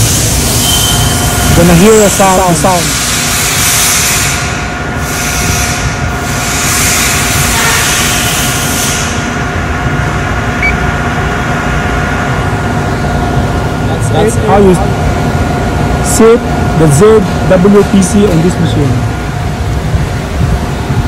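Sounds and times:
machine hum: 0.0 - 21.0.

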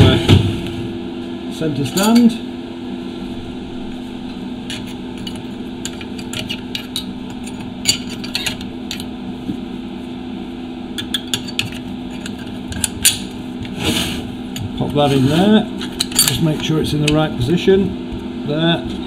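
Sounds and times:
steady low hum: 0.0 - 19.0
metal tools clinking on workbench: 2.0 - 2.3, 15.9 - 17.2.

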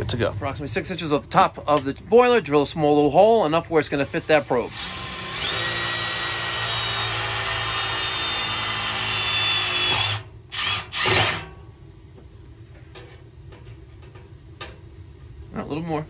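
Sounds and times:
cordless drill boring through metal: 3.9 - 11.5.

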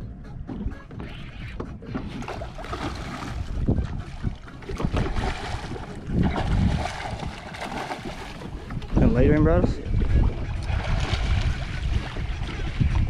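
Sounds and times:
water sloshing against boat: 0.0 - 13.0
wind buffeting microphone: 0.0 - 13.0
fish splashing: 1.8 - 8.9.

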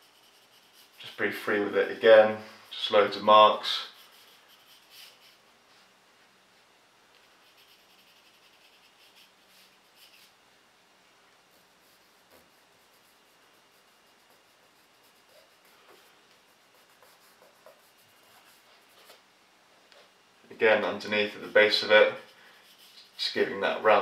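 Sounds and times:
fingertip rubbing paper: 0.0 - 5.4, 7.2 - 10.4, 11.4 - 19.2, 21.0 - 24.0
pencil scratching on paper: 0.0 - 5.4, 7.2 - 10.4, 11.4 - 19.2, 20.7 - 24.0.

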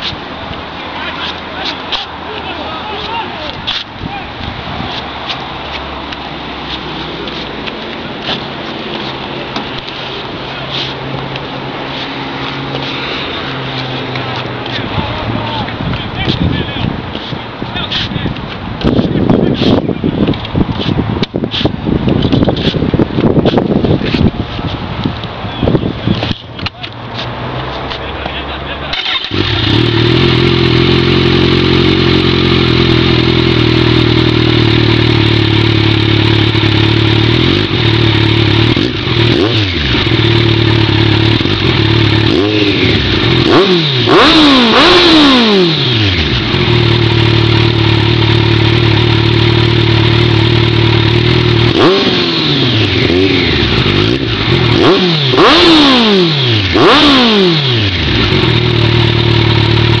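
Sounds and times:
motorcycle engine revving: 28.8 - 60.0
motorcycle engine idling: 29.0 - 43.5, 46.0 - 51.8, 57.8 - 60.0.

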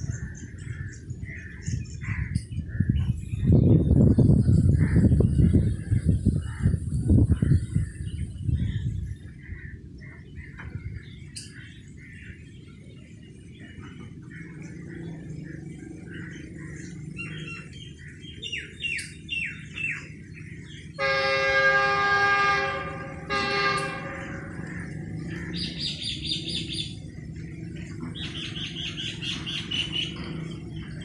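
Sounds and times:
birds chirping: 0.0 - 31.0
locomotive horn blasts: 21.0 - 24.7.

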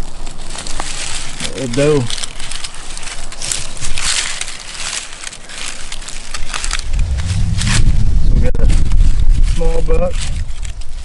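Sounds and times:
dry leaves crunching: 0.0 - 8.1
low rumble: 6.7 - 9.8.

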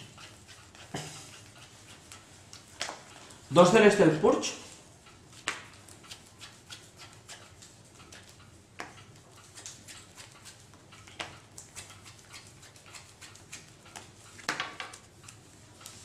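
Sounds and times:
playing cards ticking and flicking: 5.1 - 16.0.

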